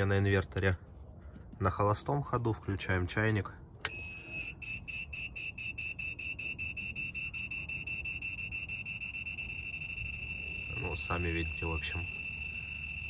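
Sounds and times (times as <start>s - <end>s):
inverter warning beeps: 3.8s - 13.0s.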